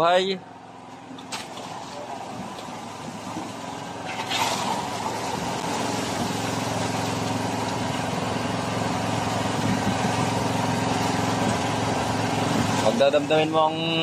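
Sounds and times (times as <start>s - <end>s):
boat engine running: 0.0s - 14.0s
water splashing along hull: 0.6s - 14.0s.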